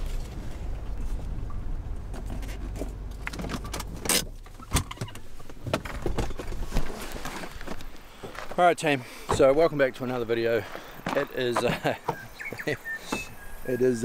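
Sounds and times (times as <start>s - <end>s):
car engine rumble from cabin: 0.0s - 8.6s
seatbelt buckle clicks: 3.2s - 5.2s.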